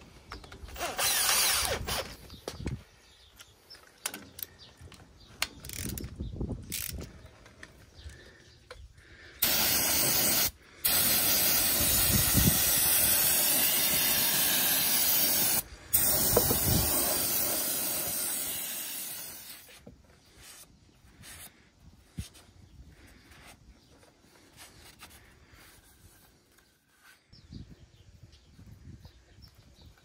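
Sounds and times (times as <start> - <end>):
aerosol can spraying hiss: 9.4 - 19.8.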